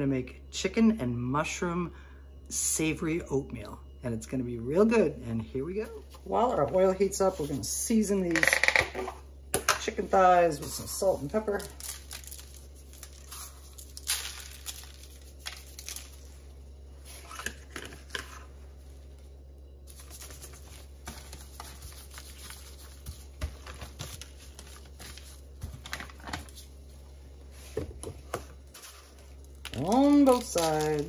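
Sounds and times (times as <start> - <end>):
steady low hum: 0.0 - 31.0
butcher paper crinkling: 10.5 - 19.2, 19.8 - 31.0.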